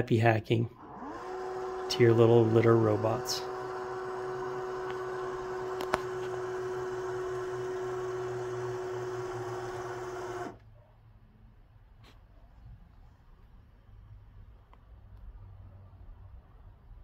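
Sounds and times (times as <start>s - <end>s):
motor humming whine: 0.8s - 10.6s.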